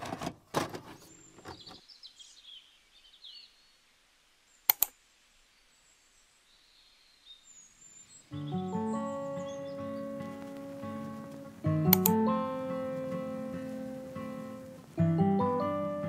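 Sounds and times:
faint birds chirping: 0.7s - 16.0s
sharp clicks: 4.7s - 5.0s, 10.2s - 12.4s.

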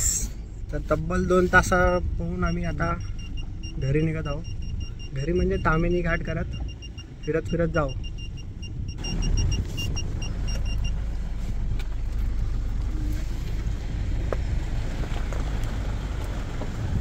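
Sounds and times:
vehicle engine and road noise: 0.0s - 17.0s
rapid electronic beeping: 2.3s - 11.0s.

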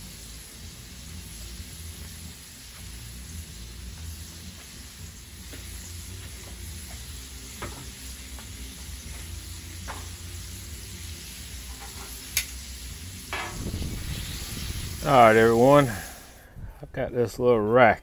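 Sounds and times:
meat sizzling in oil: 0.0s - 16.4s
tongs clicking on griddle: 11.6s - 12.7s.

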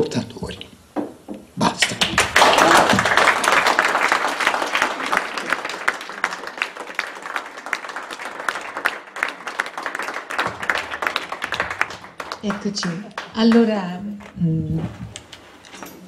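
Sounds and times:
audience applauding: 1.8s - 13.8s.

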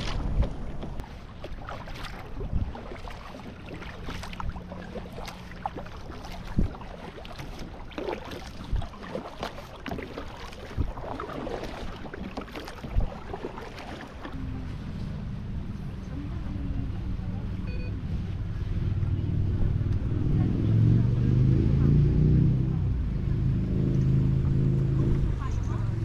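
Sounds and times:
paddle splashes: 0.0s - 15.2s
water lapping against plastic hull: 0.0s - 26.0s.

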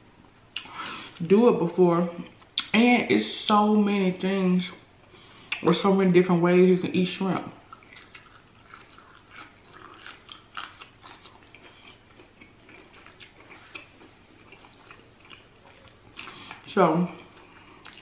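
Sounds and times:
chewing crunches: 7.7s - 18.0s.

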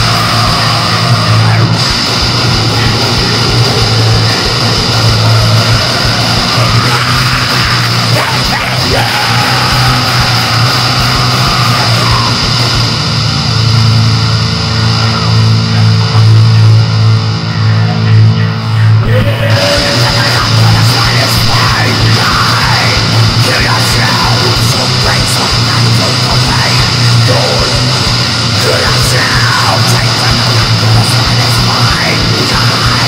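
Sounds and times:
harsh hiss: 0.0s - 13.0s, 19.6s - 33.0s
distorted heavy music: 0.0s - 33.0s
low droning tone: 0.0s - 33.0s.

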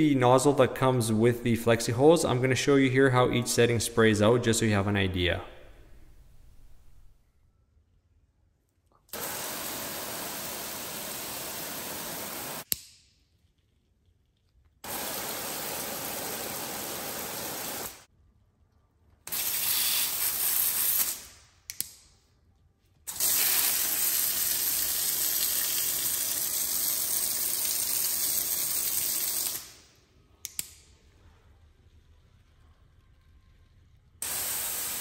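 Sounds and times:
garden hose spraying water: 9.1s - 12.7s, 14.8s - 18.1s, 23.1s - 29.6s, 34.2s - 35.0s.

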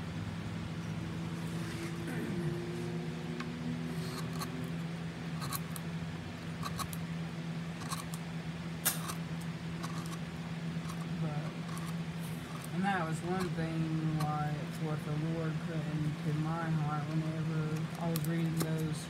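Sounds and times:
steady low hum: 0.0s - 19.0s
knife scraping cuts in wood: 9.8s - 10.2s.

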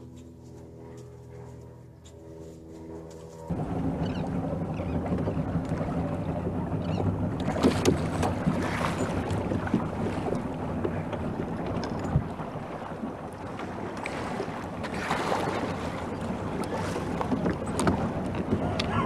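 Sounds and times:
steady low hum: 0.0s - 19.0s
wind buffeting microphone: 3.5s - 19.0s.

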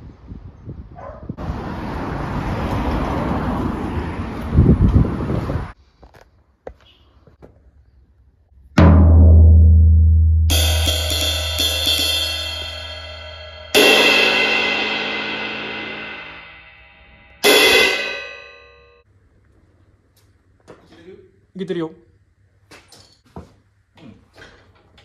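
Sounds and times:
low drum hit booming: 8.8s - 16.6s
cymbal strikes ringing: 9.0s - 19.0s.

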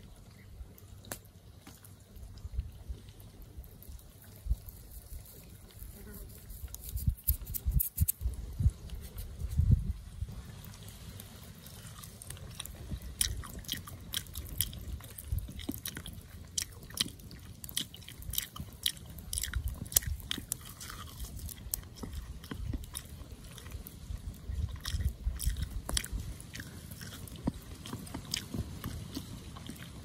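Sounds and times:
person chewing crispy chicken: 11.1s - 30.0s.

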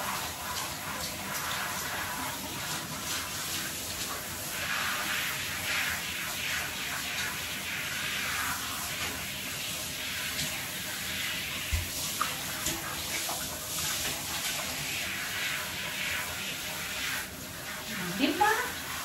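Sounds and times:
shower water spraying: 0.0s - 19.0s.

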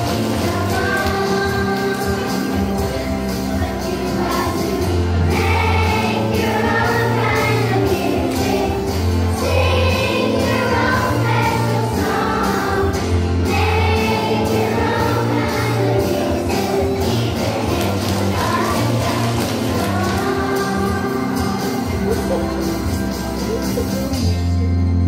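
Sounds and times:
children's choir singing: 0.0s - 23.0s
backing track with beat and bass: 14.6s - 24.9s.

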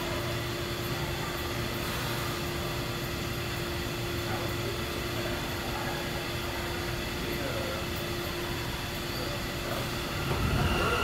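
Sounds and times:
subway train equipment humming: 0.0s - 11.0s.

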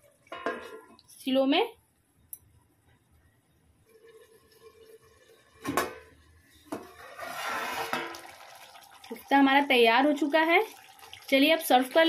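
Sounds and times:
curry bubbling: 4.0s - 12.0s.

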